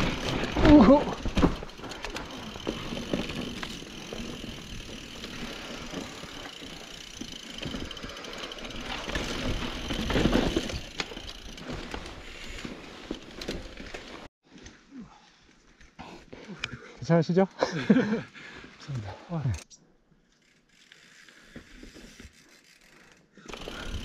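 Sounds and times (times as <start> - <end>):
bike chain and frame rattling: 0.0 - 14.3, 20.3 - 24.0
bike tyres on dirt: 0.0 - 16.2, 20.4 - 24.0.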